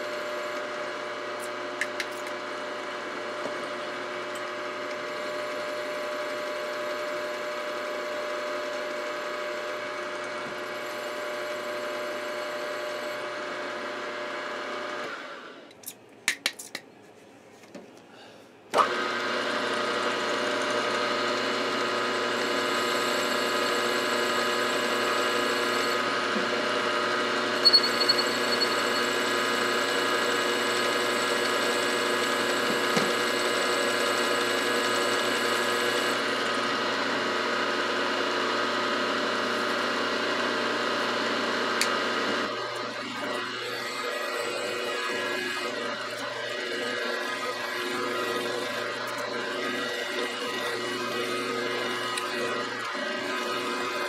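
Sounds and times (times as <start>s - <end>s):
milling machine running: 0.0s - 15.3s, 18.8s - 54.0s
drill boring through metal: 18.8s - 41.8s, 42.4s - 54.0s.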